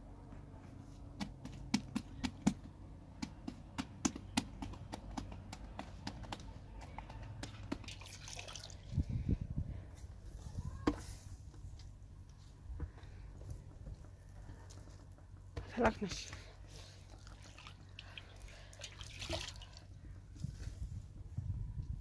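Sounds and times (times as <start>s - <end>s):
dull thumps of dough: 1.0s - 8.0s
dough slapped between hands: 1.1s - 8.0s.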